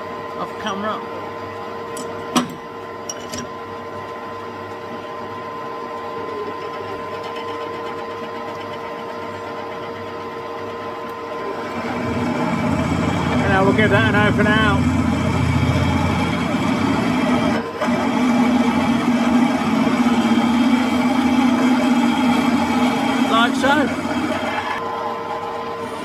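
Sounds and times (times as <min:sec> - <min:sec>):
metal lathe gear whine: 0:00.0 - 0:26.0
drill boring into steel: 0:11.5 - 0:26.0.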